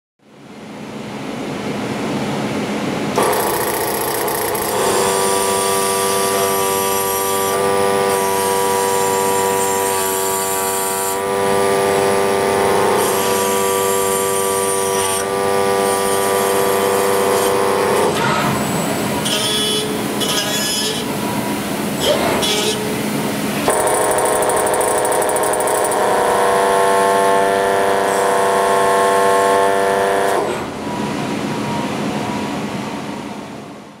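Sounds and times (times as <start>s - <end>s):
metal scraping and cutting: 3.2s - 21.4s, 22.0s - 30.7s.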